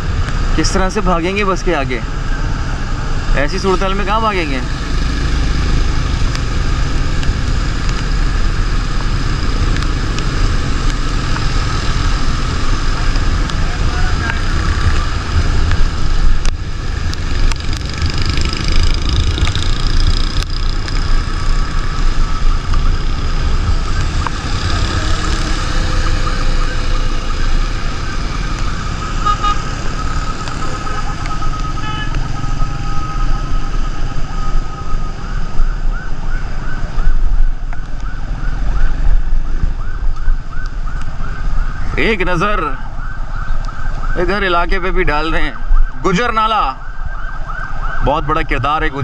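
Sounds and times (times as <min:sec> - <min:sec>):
low rumble of engine tyres and wind: 0:00.0 - 0:49.0
wavering siren-like tone: 0:17.8 - 0:49.0.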